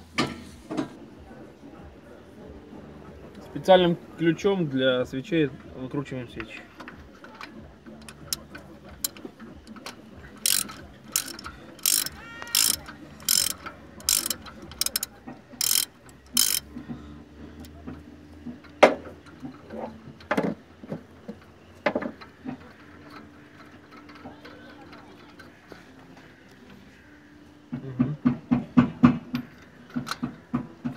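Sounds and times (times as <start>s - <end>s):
ratchet wrench clicking: 8.0s - 16.8s.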